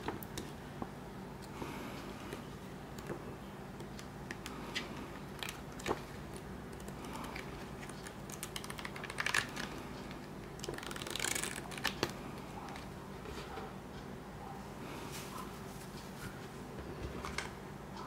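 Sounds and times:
booklet pages turning and rustling: 4.0 - 13.5
sharp paper snaps: 10.6 - 12.2.

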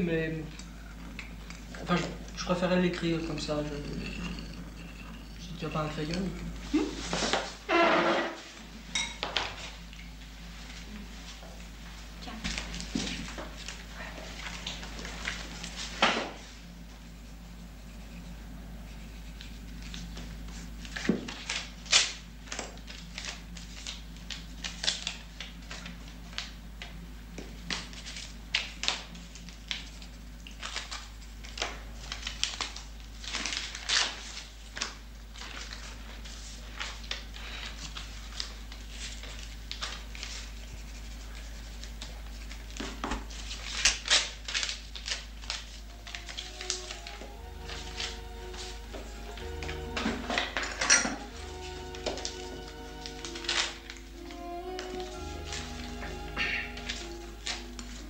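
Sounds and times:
biscuit crunching: 0.6 - 6.7
paper and crockery handled: 9.4 - 26.6, 27.5 - 58.0
pencil scratching on paper: 40.3 - 42.6.

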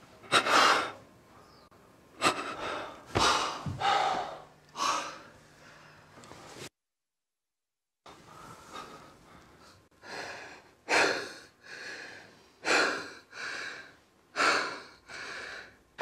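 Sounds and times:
person breathing heavily: 0.2 - 1.0, 2.2 - 6.1, 8.1 - 15.8.

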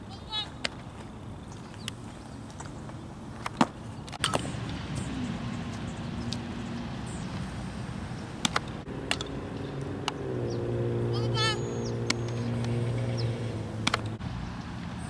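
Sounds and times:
ball smacks: 8.4 - 9.4, 13.8 - 14.2.

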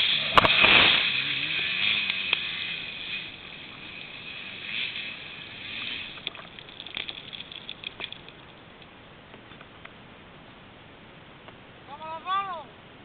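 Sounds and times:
dirt and stones raining down: 0.0 - 9.0
dirt bike engine: 0.0 - 9.7.

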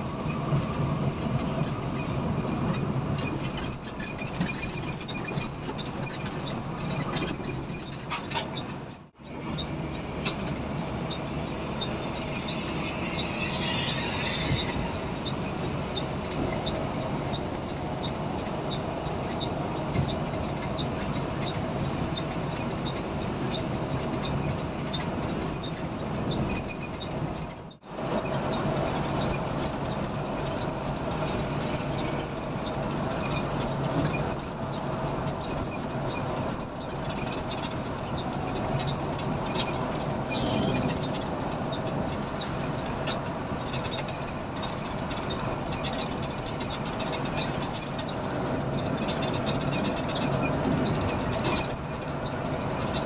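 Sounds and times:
bus engine drone: 0.0 - 53.0
road and tyre rumble: 0.0 - 53.0.

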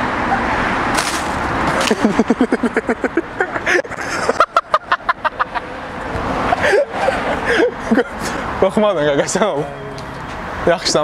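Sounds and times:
car traffic: 0.0 - 11.0
young men laughing: 1.7 - 10.0.

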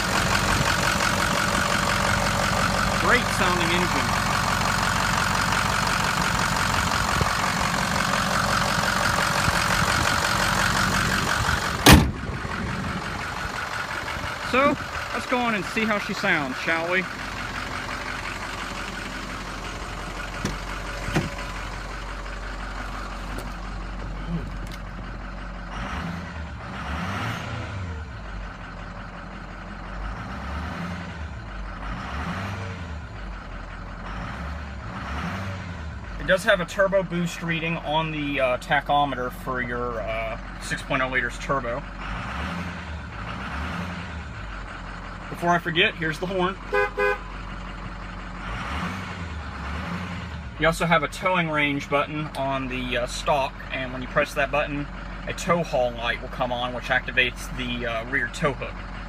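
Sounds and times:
diesel engine idling: 0.0 - 59.0
hood slamming shut: 11.6 - 12.5, 20.3 - 21.6.

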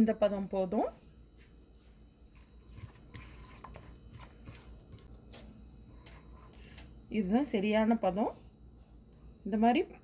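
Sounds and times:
hand squishing batter in bowl: 1.6 - 6.6.

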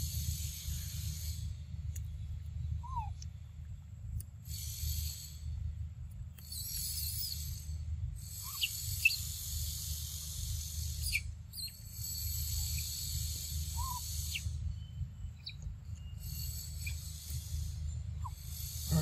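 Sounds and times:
steady low rumble: 0.0 - 6.6, 7.4 - 19.0
buzzing insect chorus: 18.4 - 19.0.

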